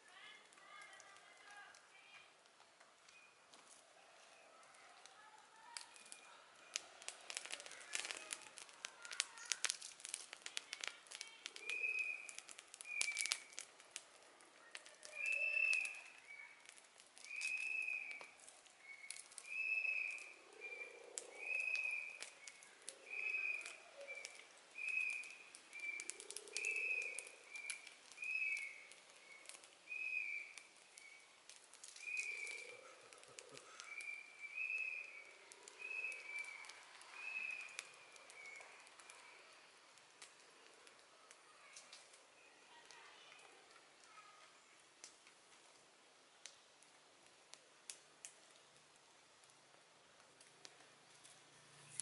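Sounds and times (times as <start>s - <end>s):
leaves and pods crinkling: 0.0s - 52.0s
bird calling: 11.5s - 13.6s, 15.0s - 16.6s, 17.3s - 31.3s, 32.0s - 39.5s.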